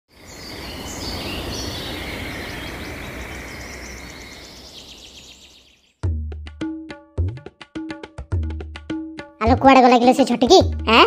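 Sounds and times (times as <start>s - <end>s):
outdoor background noise: 0.1s - 5.9s
birds chirping with trills: 0.1s - 6.0s.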